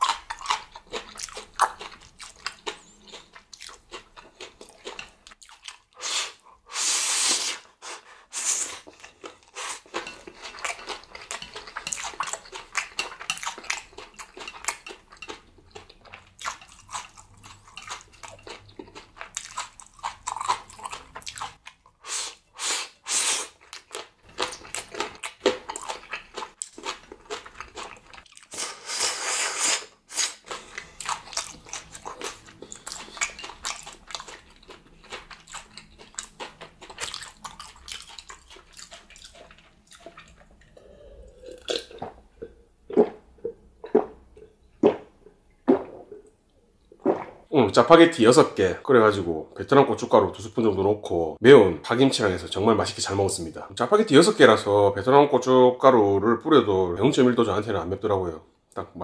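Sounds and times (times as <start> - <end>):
wet chewing and biting: 0.0 - 6.0, 8.8 - 22.0, 30.1 - 40.8.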